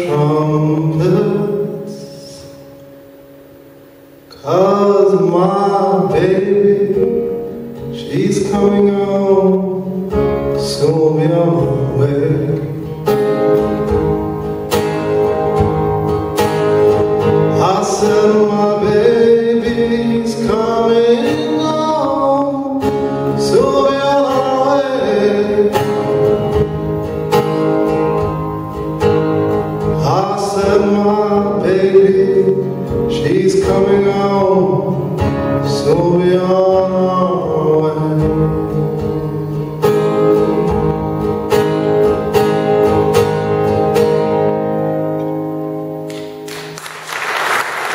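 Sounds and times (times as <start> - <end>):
man singing: 0.0 - 2.7, 4.3 - 13.0, 17.3 - 26.3, 29.8 - 40.6
acoustic guitar strumming: 0.0 - 47.9.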